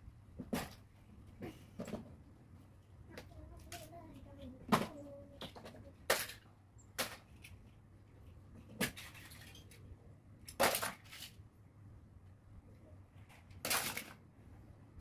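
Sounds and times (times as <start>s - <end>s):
plastic toys clattering on floor: 3.2s - 7.7s, 8.5s - 11.4s, 13.2s - 14.2s.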